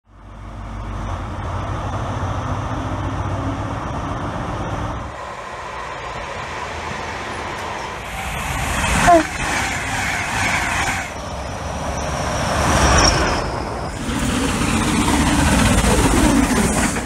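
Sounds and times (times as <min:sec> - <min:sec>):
electric train running: 0:04.1 - 0:17.0
diesel engine rumble: 0:11.0 - 0:17.0.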